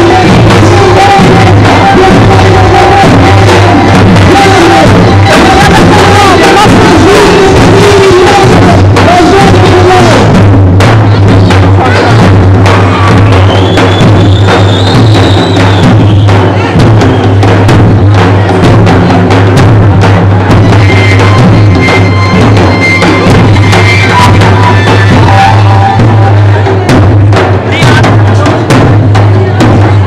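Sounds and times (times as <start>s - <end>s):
large drums beaten fast: 0.0s - 30.0s
small marching drum: 0.0s - 30.0s
thin high melody: 20.8s - 26.6s.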